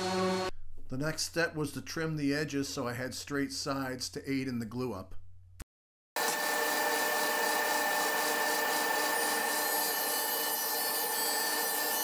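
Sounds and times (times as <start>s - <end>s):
table saw cutting wood: 0.0s - 0.5s, 6.2s - 12.0s.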